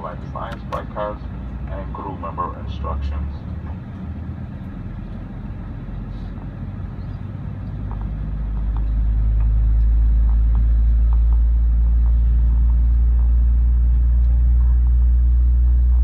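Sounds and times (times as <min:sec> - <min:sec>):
airplane cabin low rumble: 0:00.0 - 0:16.0.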